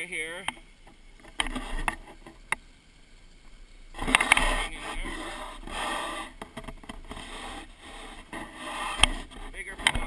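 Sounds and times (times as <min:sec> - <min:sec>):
scraping and rubbing: 0:01.2 - 0:02.4, 0:04.0 - 0:10.0.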